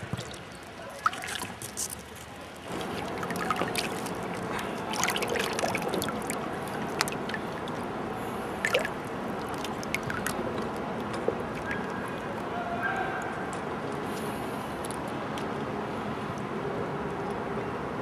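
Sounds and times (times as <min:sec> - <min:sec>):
splashes and drips: 0:00.0 - 0:15.5
river rushing: 0:02.7 - 0:13.9.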